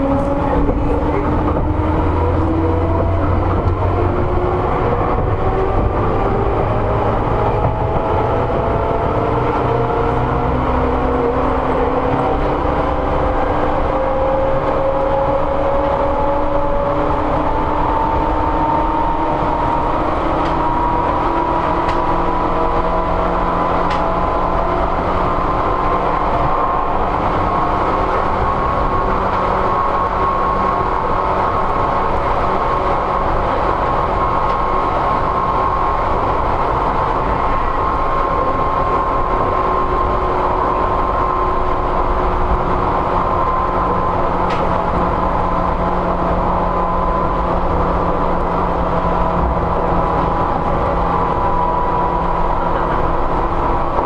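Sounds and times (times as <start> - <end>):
rumble of wheels on rail: 0.0 - 54.0.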